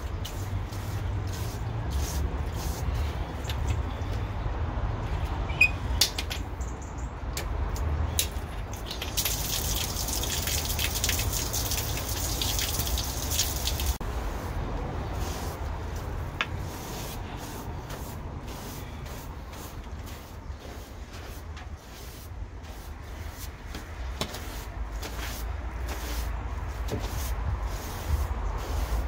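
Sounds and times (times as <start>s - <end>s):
stiff broom scrubbing concrete: 0.0s - 4.3s, 7.8s - 29.0s
hose spraying water: 8.2s - 14.0s.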